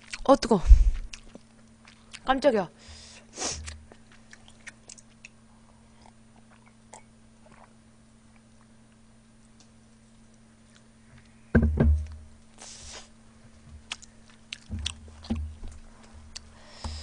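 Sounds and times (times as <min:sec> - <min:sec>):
loud low thump: 0:11.5 - 0:12.2.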